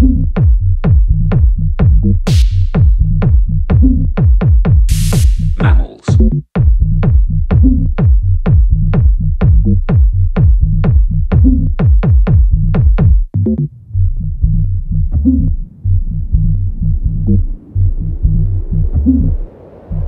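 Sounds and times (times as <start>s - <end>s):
electronic dance music: 2.3s - 3.0s, 4.9s - 6.3s.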